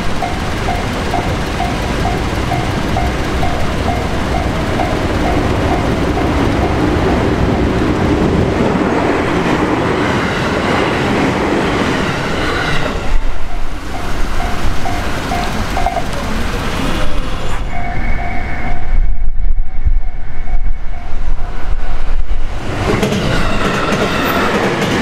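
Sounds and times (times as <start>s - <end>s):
electric train passing: 0.0s - 25.0s
level crossing bell dinging: 0.1s - 6.9s, 13.5s - 16.1s.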